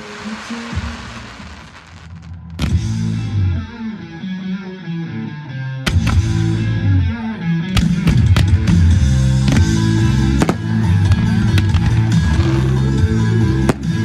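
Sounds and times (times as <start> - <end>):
firework bangs: 0.0 - 3.0, 7.8 - 14.0
rock music with electric guitar: 0.0 - 14.0.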